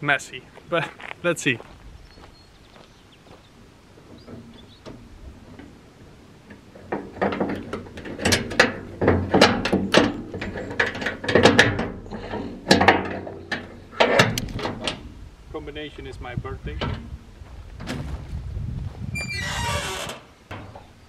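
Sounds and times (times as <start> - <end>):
lock clacking against metal latch: 12.7 - 15.0.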